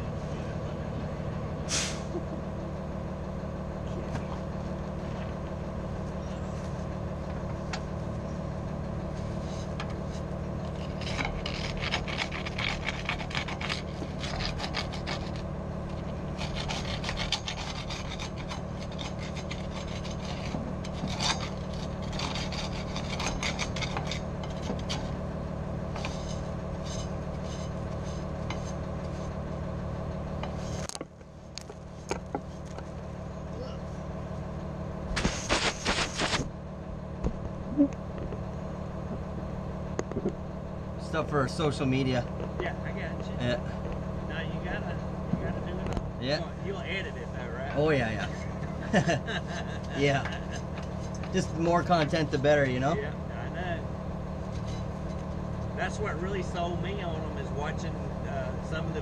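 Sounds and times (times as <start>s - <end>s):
low engine hum: 0.0s - 59.0s
brush scrubbing metal: 16.0s - 25.2s, 25.9s - 29.3s.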